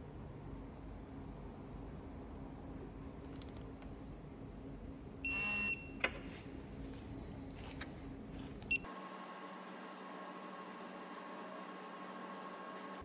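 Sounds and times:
torque wrench beeping: 0:10.7 - 0:11.1, 0:12.4 - 0:13.0.

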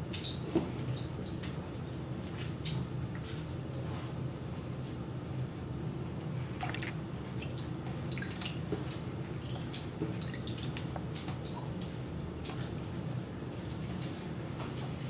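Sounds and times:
steady low hum: 0:01.0 - 0:15.0
water splashing in a tub: 0:06.6 - 0:10.8.

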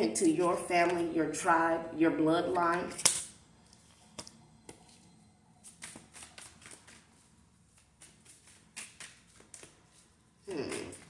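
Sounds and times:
cards being shuffled: 0:05.7 - 0:10.1.

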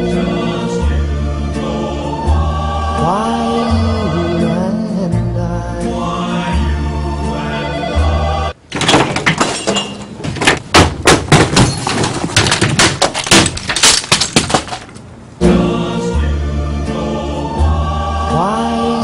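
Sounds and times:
background music: 0:00.0 - 0:08.6, 0:15.4 - 0:19.0
office equipment crashing: 0:08.7 - 0:15.0.

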